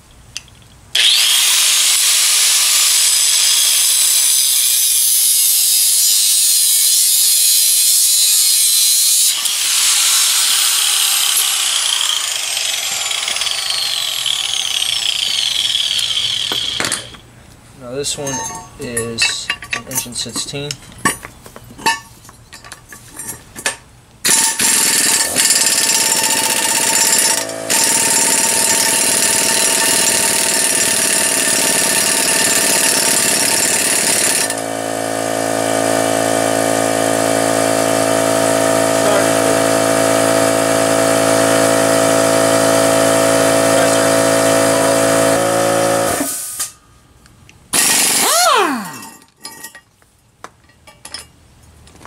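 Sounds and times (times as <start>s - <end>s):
impact wrench hammering: 1.0s - 17.2s, 24.2s - 34.7s, 47.7s - 49.2s.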